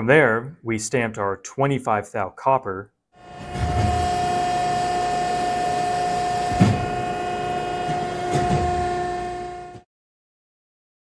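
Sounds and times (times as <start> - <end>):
press brake whining: 3.2 - 9.8.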